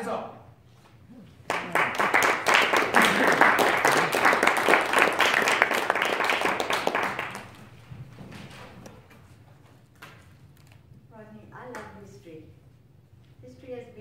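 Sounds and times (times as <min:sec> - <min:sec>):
small audience applause: 0:01.4 - 0:07.8.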